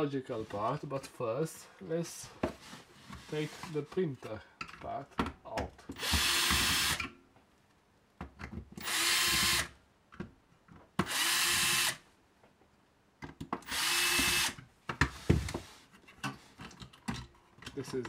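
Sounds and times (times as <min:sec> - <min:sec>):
electric screwdriver running: 0:06.0 - 0:07.0, 0:08.8 - 0:09.7, 0:11.0 - 0:12.0, 0:13.6 - 0:14.6.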